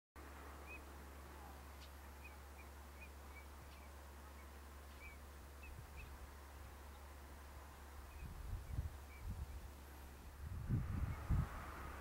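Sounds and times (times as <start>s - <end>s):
steady low hum: 0.2s - 12.0s
faint high bird chirps: 0.6s - 6.2s, 8.0s - 9.6s.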